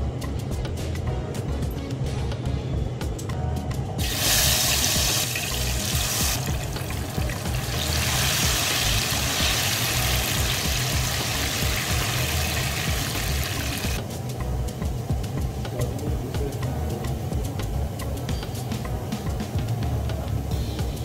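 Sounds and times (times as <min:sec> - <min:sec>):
plantain sizzling in hot oil: 0:04.0 - 0:15.7.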